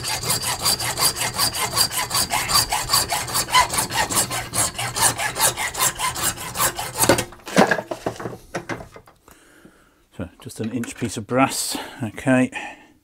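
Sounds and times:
hand saw cutting brass: 0.0s - 7.3s.

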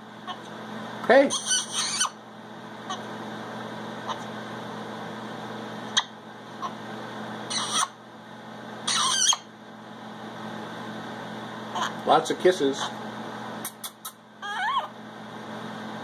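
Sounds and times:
steady low hum: 0.0s - 16.0s
parrot squawking: 1.2s - 2.2s, 2.8s - 3.1s, 5.9s - 6.8s, 7.5s - 8.0s, 8.8s - 9.5s, 11.7s - 12.0s, 13.7s - 14.9s.

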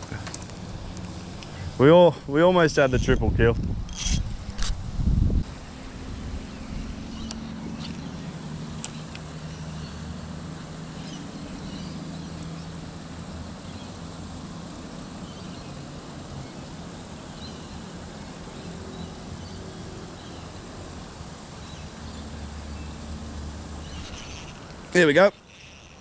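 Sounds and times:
faint bird chirps: 23.8s - 26.0s.

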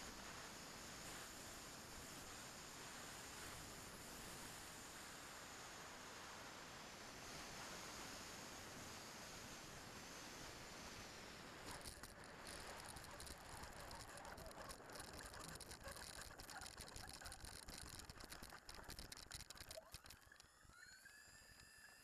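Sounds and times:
model airplane rattling over grass: 11.6s - 20.4s.

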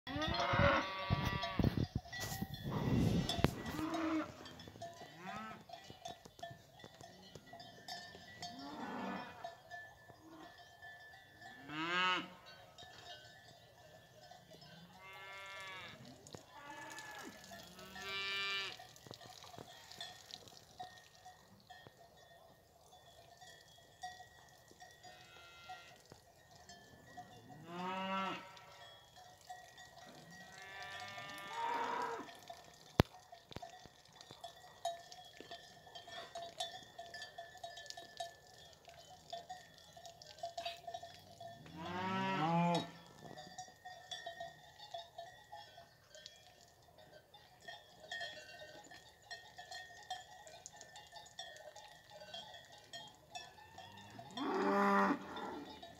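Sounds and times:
cows mooing: 0.1s - 1.8s, 2.6s - 5.8s, 8.4s - 9.6s, 11.6s - 12.5s, 14.6s - 18.8s, 27.5s - 28.9s, 30.2s - 32.4s, 41.6s - 43.4s, 53.8s - 55.9s
cowbells clanking: 0.1s - 55.9s.

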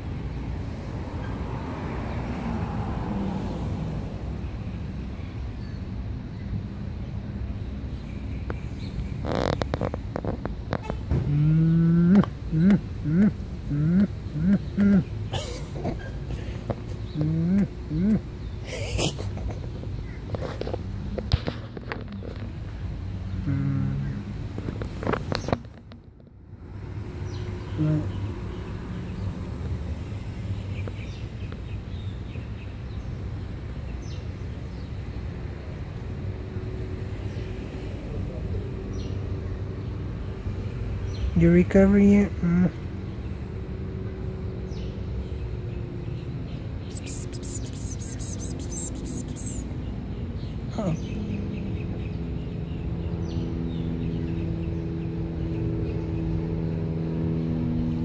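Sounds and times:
short high bird chirps: 46.9s - 49.7s.

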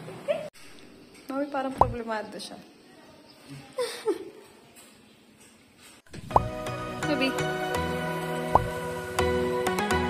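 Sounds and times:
background music with steady beat: 6.1s - 10.0s.

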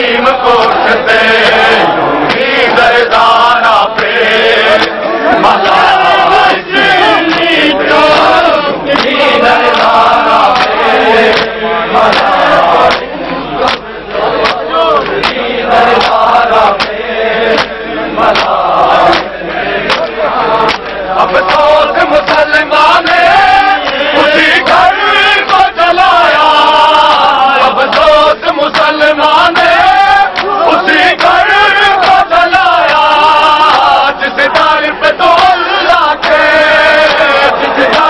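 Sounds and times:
men chanting: 0.0s - 38.0s
hands slapping bare chests: 8.1s - 15.4s, 16.0s - 22.5s, 28.7s - 31.4s.

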